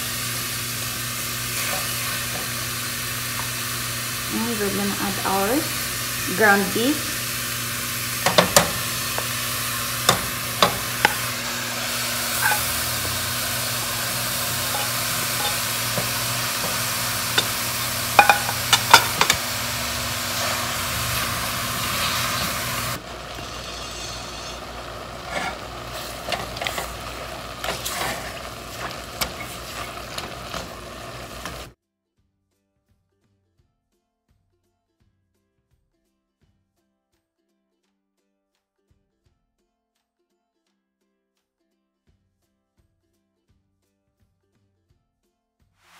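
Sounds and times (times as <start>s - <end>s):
meat sizzling in a pan: 0.0s - 31.8s.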